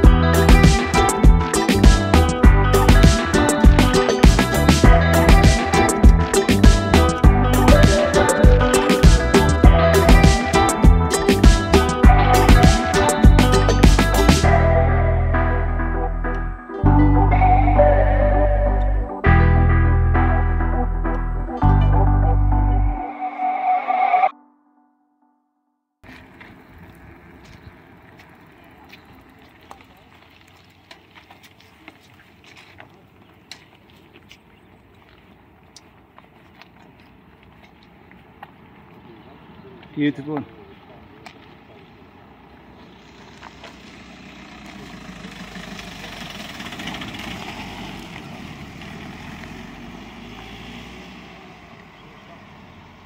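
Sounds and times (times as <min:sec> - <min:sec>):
people talking outdoors: 0:38.6 - 0:43.5
pickup truck driving past: 0:42.9 - 0:53.0.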